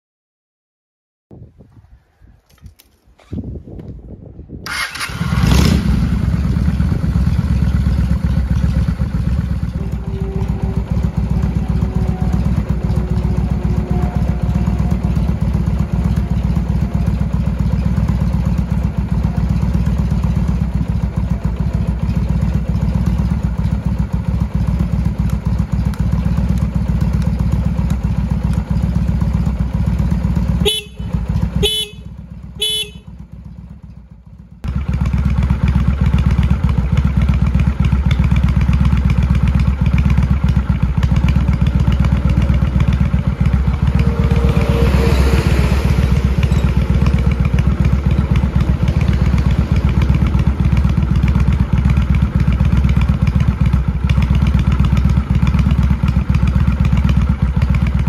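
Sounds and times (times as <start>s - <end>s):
motorcycle engine idling: 4.7s - 58.0s
horn beeps: 9.7s - 20.0s, 30.6s - 33.2s.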